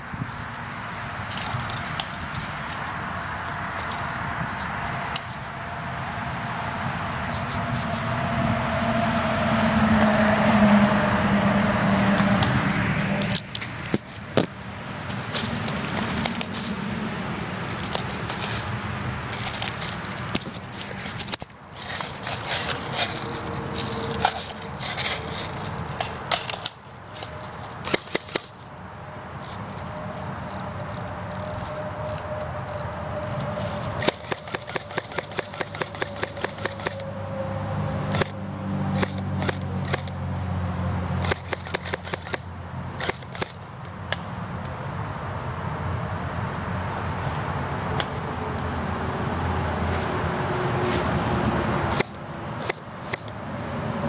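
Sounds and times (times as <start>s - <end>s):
airsoft guns firing: 34.0s - 37.0s.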